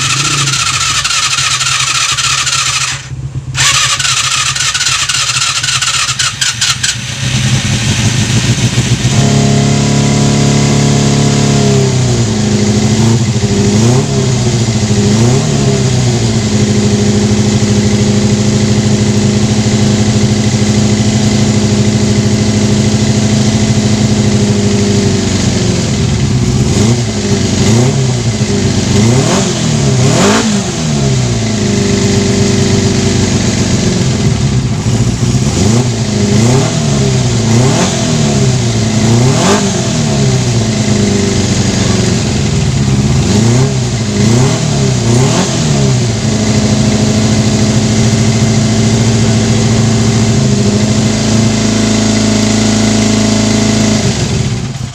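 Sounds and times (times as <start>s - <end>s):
motorcycle engine revving: 0.0s - 54.9s.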